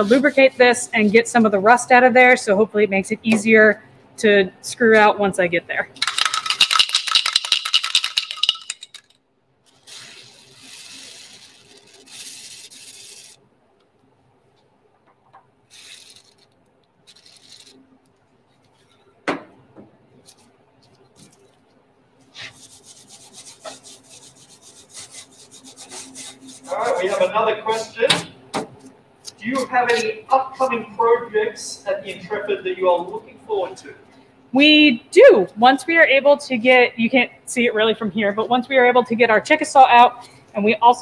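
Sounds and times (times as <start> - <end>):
aerosol can hissing in bursts: 9.7 - 13.4.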